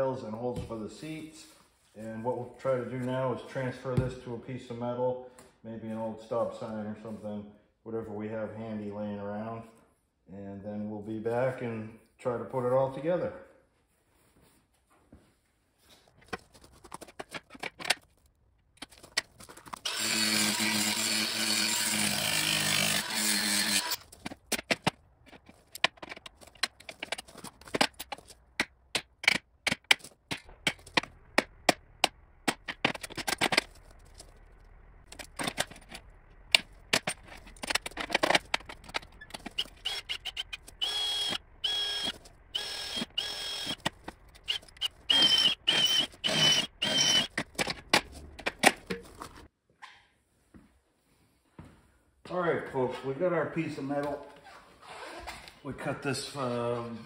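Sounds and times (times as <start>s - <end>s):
drill drilling into steel: 19.8s - 24.0s, 39.6s - 43.8s, 44.4s - 47.3s
power tool cutting steel: 19.8s - 24.0s, 39.5s - 43.8s, 44.4s - 47.3s
metal and tools clattering: 22.7s - 40.9s.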